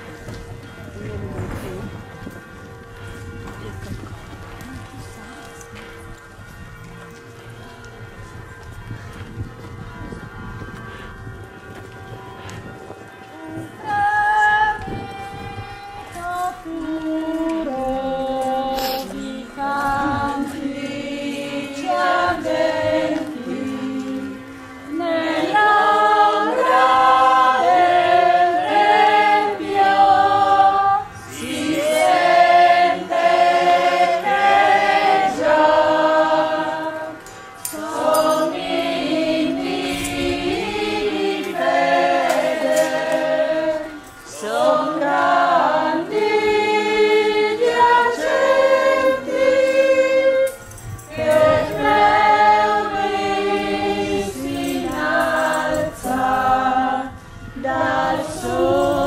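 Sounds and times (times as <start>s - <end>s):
choir singing a hymn: 13.2s - 59.0s.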